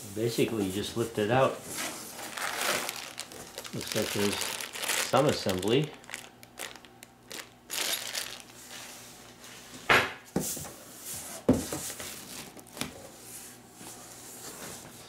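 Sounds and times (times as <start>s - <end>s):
plastic wrap crinkling: 2.1s - 8.8s.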